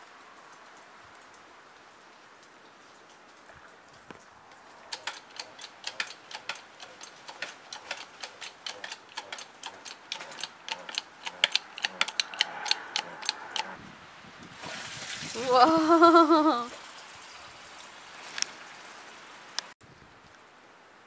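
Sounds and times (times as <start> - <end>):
hydraulic jack pumping clicks: 4.9 - 13.8.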